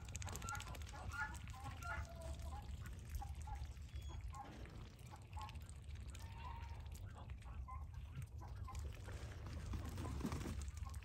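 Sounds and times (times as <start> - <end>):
geese and ducks calling: 0.3 - 8.1.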